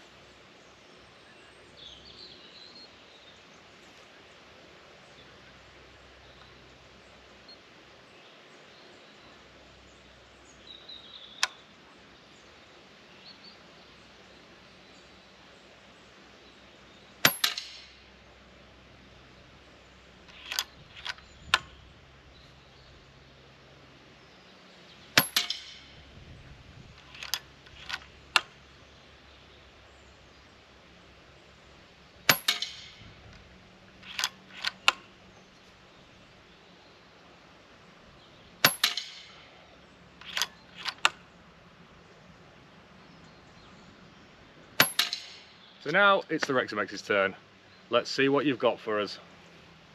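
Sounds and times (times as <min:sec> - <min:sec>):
metallic clicks of rifle cycling: 0:11.3 - 0:11.7, 0:20.2 - 0:21.8, 0:26.9 - 0:28.6, 0:32.2 - 0:35.7, 0:40.2 - 0:41.3
air rifle shots: 0:17.2 - 0:18.1, 0:25.2 - 0:26.0, 0:32.2 - 0:33.2, 0:38.6 - 0:39.6, 0:44.8 - 0:45.5.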